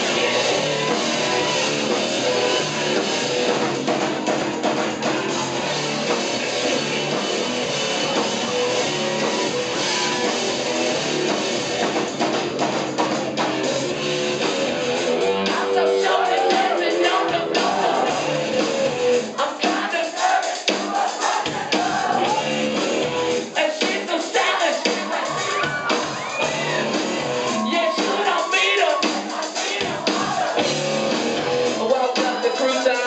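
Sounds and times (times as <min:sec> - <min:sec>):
electric guitar: 0:00.0 - 0:19.3
drum kit: 0:00.0 - 0:33.0.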